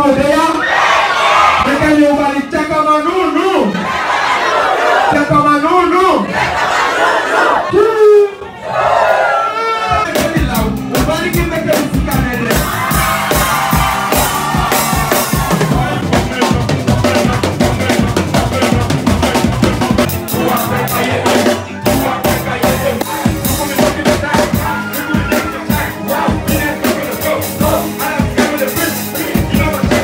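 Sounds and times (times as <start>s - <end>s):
loud live music: 9.8s - 30.0s
drum kit beat: 10.0s - 30.0s.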